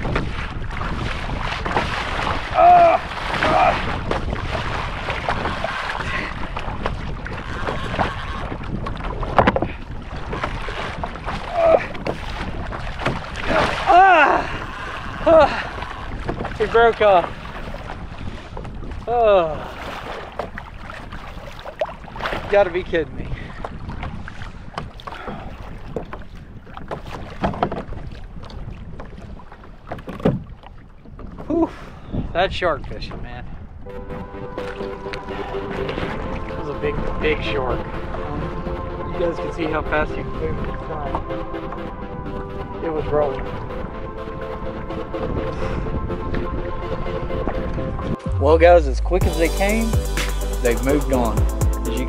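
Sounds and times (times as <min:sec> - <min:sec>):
wind on microphone: 0:00.0 - 0:48.5
water rushing along kayak hull: 0:00.0 - 0:52.0
clicks and knocks from fishing gear: 0:08.8 - 0:09.7, 0:26.8 - 0:28.6.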